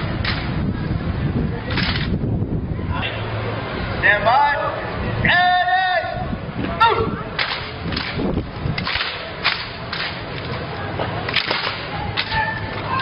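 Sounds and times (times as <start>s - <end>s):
rifles slapping into hands: 7.4s - 12.8s.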